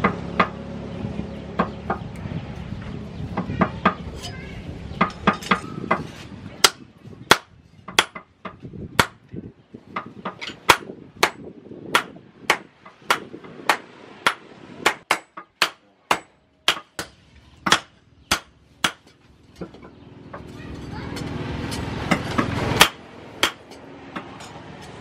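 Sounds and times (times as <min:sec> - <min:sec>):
hammer striking hot metal on anvil: 0:12.0 - 0:19.1, 0:21.7 - 0:25.0.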